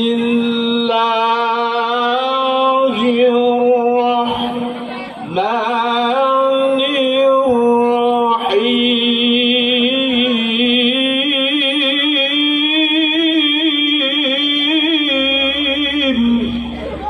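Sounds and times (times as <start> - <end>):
man reciting melodically into microphone: 0.0 - 17.0.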